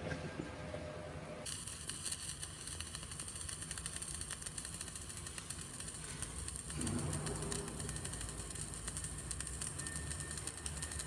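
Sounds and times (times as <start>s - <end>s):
welding arc crackling: 1.4s - 11.0s.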